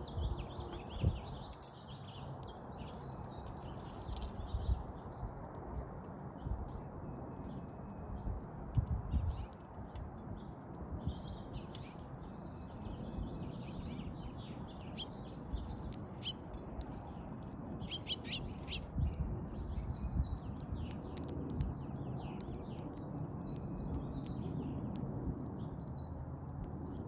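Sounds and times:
small songbirds chirping: 0:00.0 - 0:27.0
sharp ticks and clicks: 0:00.4 - 0:27.0
steady low rumble: 0:02.7 - 0:27.0.

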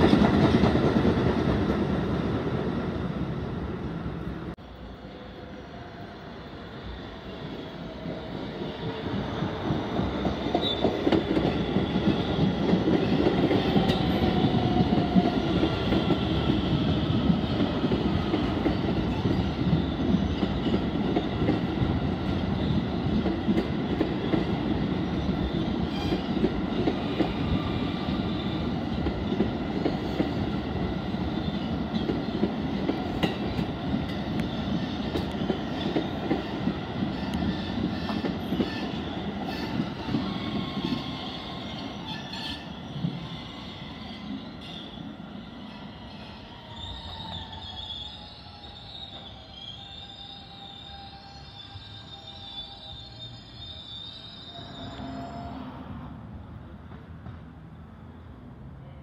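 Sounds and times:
train wheels rumbling on rails: 0:00.0 - 0:04.6, 0:07.3 - 0:49.4.

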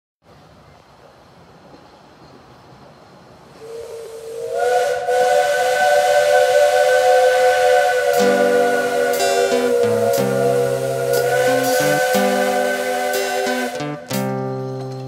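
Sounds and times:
locomotive air horn chord: 0:03.6 - 0:14.2.

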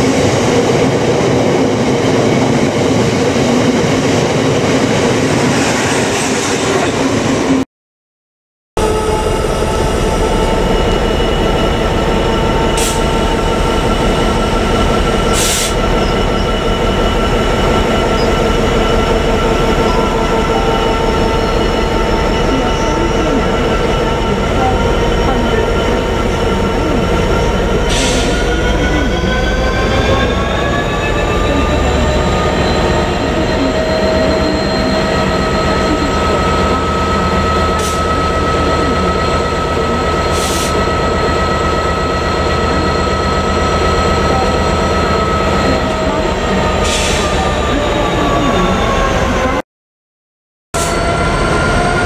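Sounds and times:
diesel locomotive engine running: 0:08.8 - 0:49.6.

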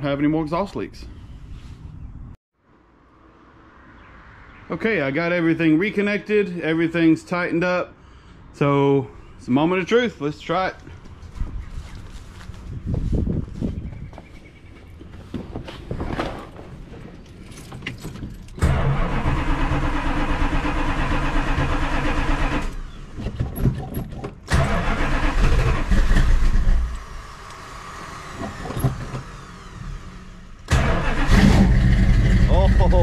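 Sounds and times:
car engine cranking and starting: 0:16.9 - 0:33.0.

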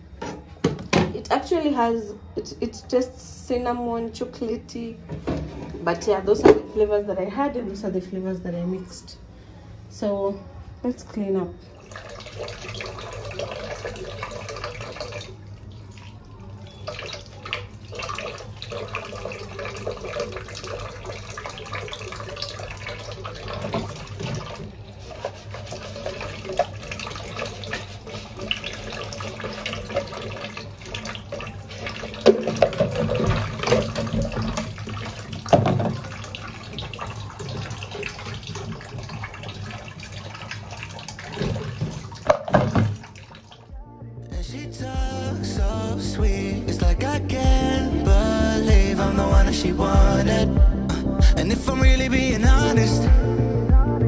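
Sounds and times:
tap water running into sink: 0:11.8 - 0:43.7.

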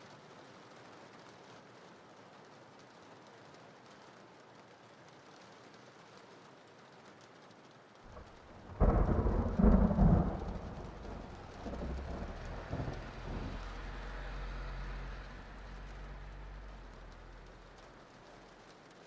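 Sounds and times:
thunder clap and rumble: 0:08.1 - 0:18.4.

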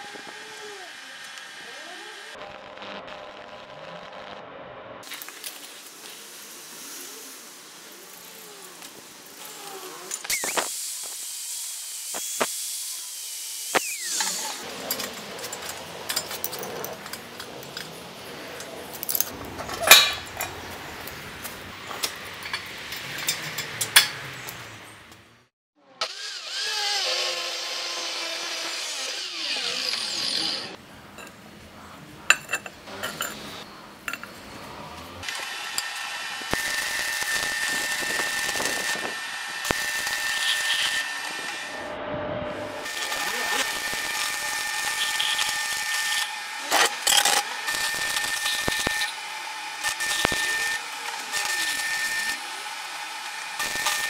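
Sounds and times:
power tool whining: 0:00.0 - 0:02.9, 0:08.2 - 0:15.9, 0:26.0 - 0:30.8, 0:35.2 - 0:42.0, 0:42.6 - 0:54.0
small steel parts clinking: 0:14.7 - 0:18.0, 0:18.9 - 0:20.6
sharp metal clanks: 0:19.1 - 0:20.5.

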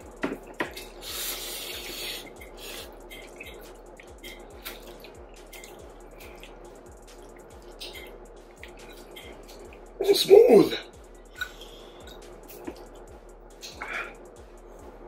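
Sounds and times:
slurping noodles: 0:00.8 - 0:03.6
chewing smacking sounds: 0:02.4 - 0:09.8.

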